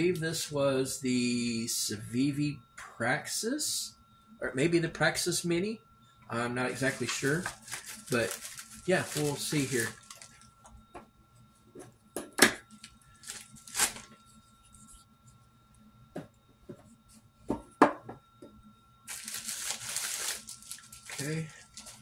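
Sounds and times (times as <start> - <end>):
paper rustling: 6.8 - 10.5, 13.2 - 14.2, 19.1 - 22.0
paper envelope tearing: 6.9 - 10.4, 13.2 - 14.1, 19.1 - 22.0.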